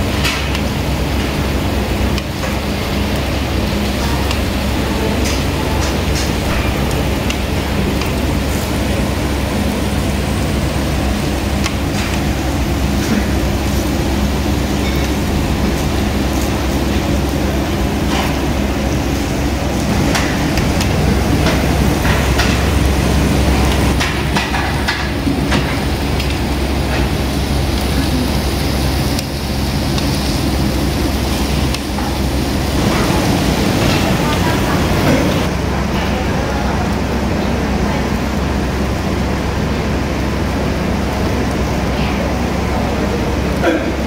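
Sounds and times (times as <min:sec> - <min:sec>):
low mechanical hum: 0:00.0 - 0:44.0
meat sizzling on a grill: 0:00.0 - 0:44.0.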